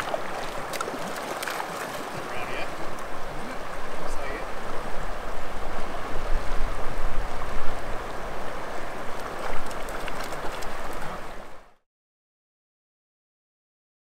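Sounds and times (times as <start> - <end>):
river flowing: 0.0 - 11.8
wind rumbling on microphone: 0.0 - 11.8.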